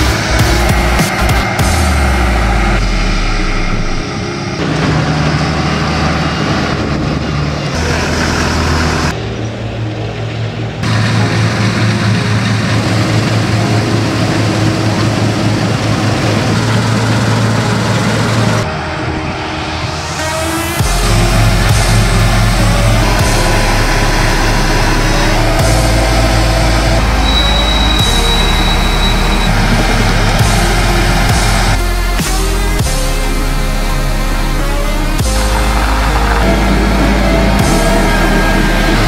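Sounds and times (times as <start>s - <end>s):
combine harvester engine hum: 0.0s - 39.0s
threshing machinery noise: 0.0s - 39.0s.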